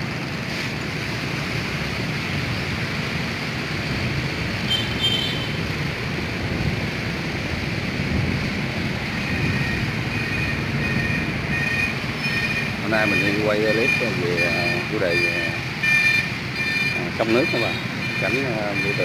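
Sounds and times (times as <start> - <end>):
wind buffeting microphone: 5.6 - 12.8.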